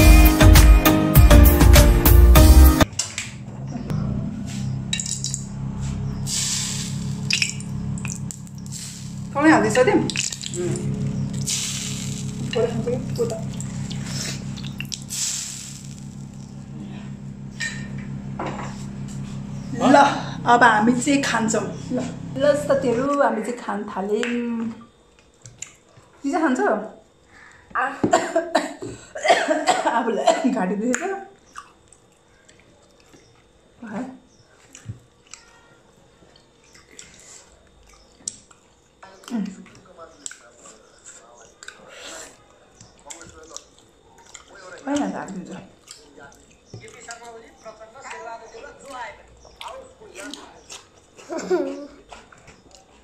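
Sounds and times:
low hum: 3.3s - 23.2s
short hissing noises: 5.8s - 7.6s, 8.6s - 9.3s, 11.3s - 12.5s, 13.6s - 16.3s
people chewing with lip smacks: 13.2s - 15.1s, 24.3s - 26.2s, 30.9s - 53.0s.

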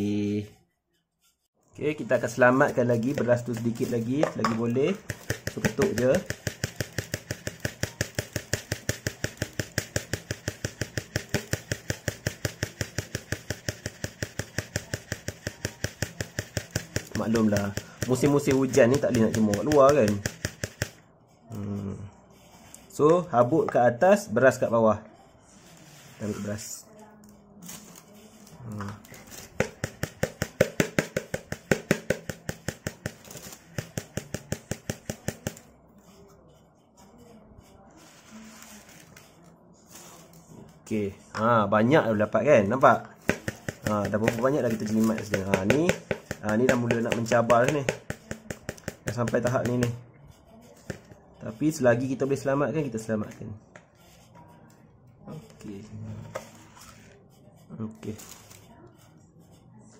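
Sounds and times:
rapid tapping on plastic basin: 2.0s - 21.0s, 29.0s - 35.7s, 41.3s - 50.0s, 50.8s - 51.1s.

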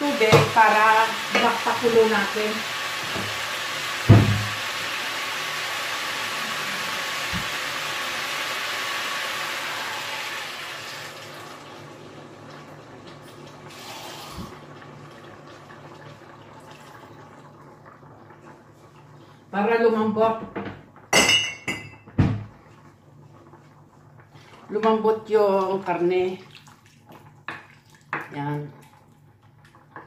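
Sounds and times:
pork sizzling in a pot: 0.0s - 17.6s
water pouring: 6.2s - 19.4s, 25.7s - 29.9s.

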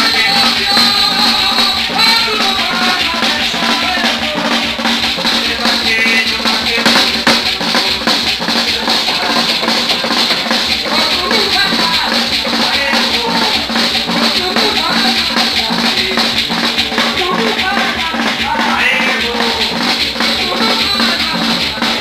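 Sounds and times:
person singing into microphone: 0.0s - 4.7s
drums: 0.0s - 22.0s
maracas shaking: 0.0s - 22.0s.

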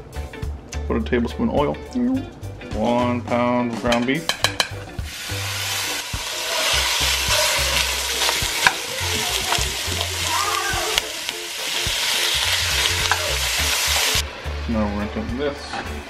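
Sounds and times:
ground beef sizzling in hot oil: 5.0s - 14.3s
wooden spoon stirring meat: 6.2s - 13.9s.

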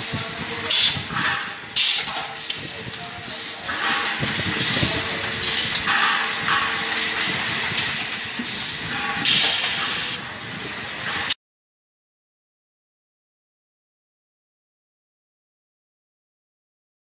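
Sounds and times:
short gas hisses: 8.4s - 10.2s.

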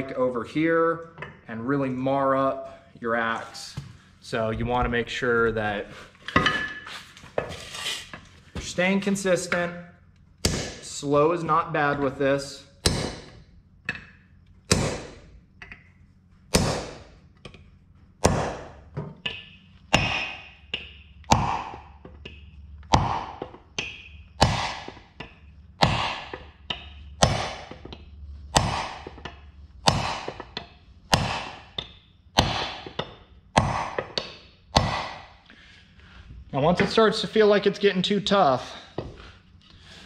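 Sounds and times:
mallet knocking wooden wedge: 18.2s - 35.4s.

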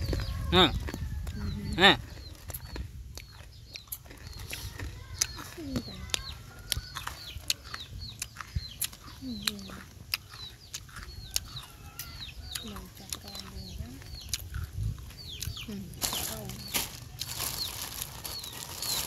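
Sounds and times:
chickens clucking: 0.0s - 19.0s
cat eating from plastic bag: 16.0s - 19.0s.

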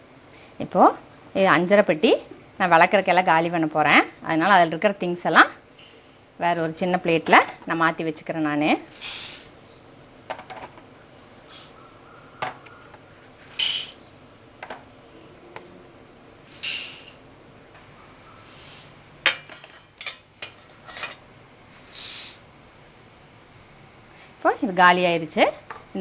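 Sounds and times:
seeds rattling onto metal plates: 8.9s - 9.5s, 13.4s - 14.0s, 16.4s - 17.2s.

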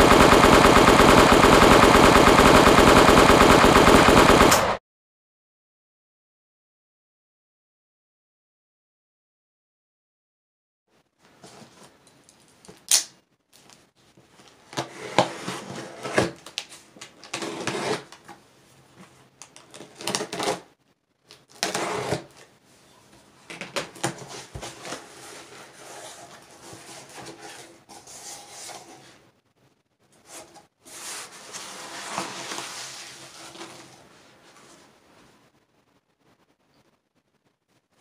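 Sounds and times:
cardboard box scraping and rustling: 14.8s - 16.4s, 17.3s - 18.2s, 21.6s - 22.4s, 24.0s - 29.2s, 30.2s - 34.9s.

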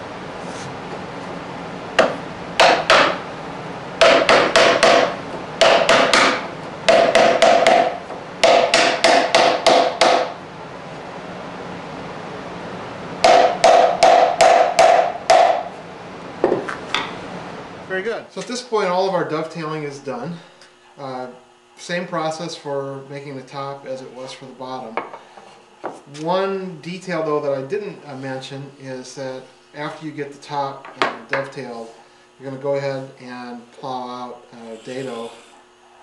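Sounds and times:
mallet knocking wood joint: 2.0s - 3.2s, 4.0s - 10.3s, 13.2s - 15.7s.

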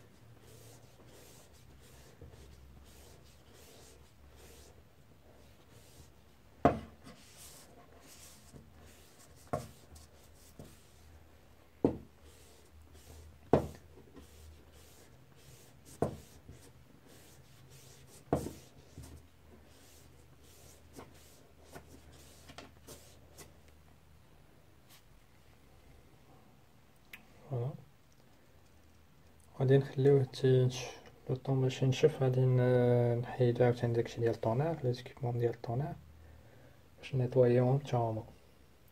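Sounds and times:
cloth rubbing on roller: 0.0s - 4.8s, 5.4s - 11.2s, 11.9s - 23.2s.

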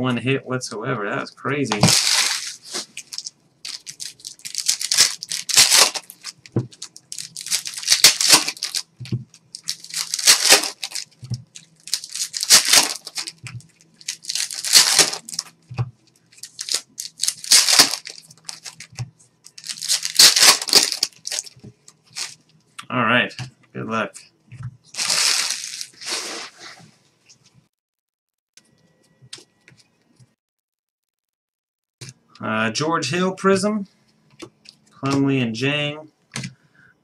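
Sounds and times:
foil packs tearing: 1.8s - 8.9s, 9.5s - 11.2s, 11.8s - 13.4s, 14.0s - 15.5s, 16.4s - 18.9s, 19.6s - 21.5s, 22.1s - 22.4s, 25.0s - 26.6s.

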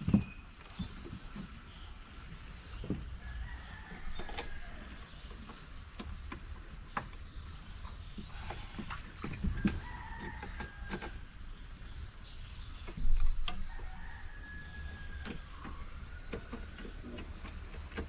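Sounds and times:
rooster crowing: 9.6s - 11.2s, 13.6s - 16.6s.

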